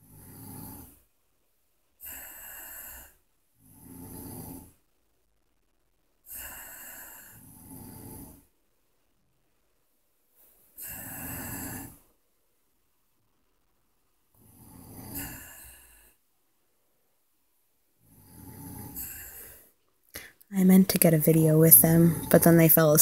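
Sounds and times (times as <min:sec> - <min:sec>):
people snoring: 0:00.0 - 0:01.0, 0:02.0 - 0:04.8, 0:06.3 - 0:08.5, 0:10.8 - 0:12.1, 0:14.4 - 0:16.2, 0:18.0 - 0:20.4, 0:21.3 - 0:23.0.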